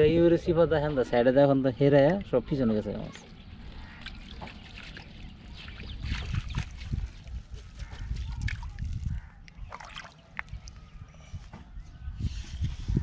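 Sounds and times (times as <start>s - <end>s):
water sloshing and dripping: 2.0s - 10.9s
water splashes: 2.2s - 10.8s.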